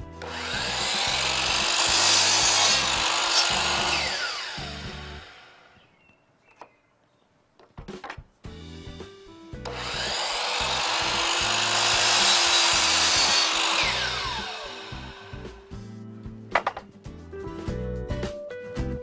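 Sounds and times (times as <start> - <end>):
miter saw cutting wood: 0.2 - 5.8, 9.6 - 15.7.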